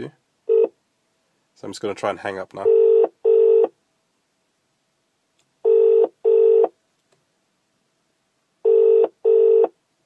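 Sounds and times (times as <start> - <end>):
double-ring ringback tone: 8.7 - 9.7.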